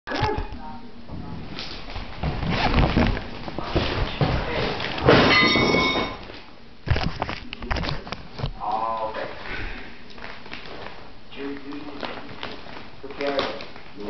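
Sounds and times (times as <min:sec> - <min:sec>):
plastic bag rustling: 0:01.4 - 0:08.4, 0:10.1 - 0:14.0.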